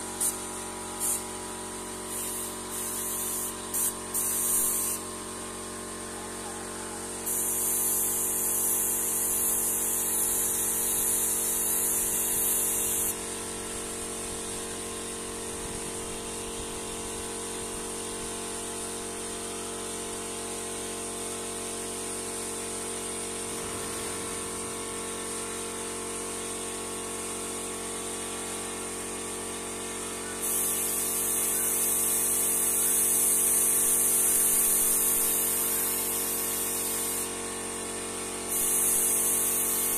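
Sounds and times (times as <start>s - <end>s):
airbrush spraying hiss: 0.0s - 5.1s, 7.2s - 17.0s, 30.4s - 37.4s, 38.5s - 39.9s
air compressor humming: 0.0s - 39.9s.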